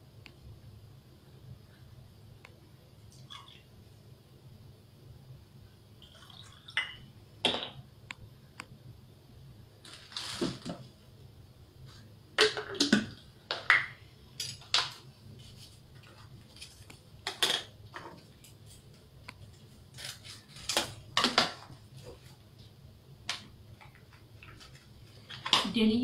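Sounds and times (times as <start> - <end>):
packet rustling: 9.8 - 10.9.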